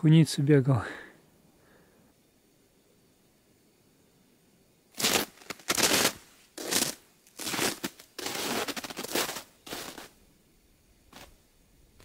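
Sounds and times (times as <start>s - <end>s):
footsteps crunching on frozen snow: 5.0s - 10.2s, 11.1s - 11.3s.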